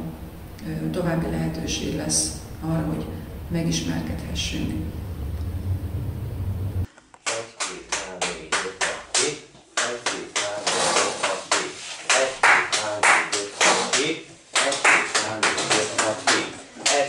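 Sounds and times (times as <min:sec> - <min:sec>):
low steady hum: 0:00.0 - 0:06.9
class clapping in rhythm: 0:07.2 - 0:17.0.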